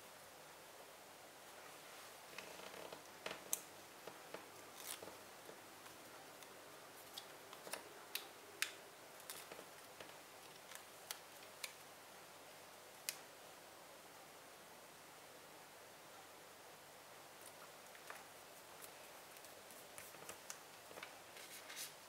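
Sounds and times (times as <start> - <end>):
steady low hiss: 0.0 - 22.0
faint rustling: 1.5 - 7.9
paper stickers peeling: 4.3 - 5.2.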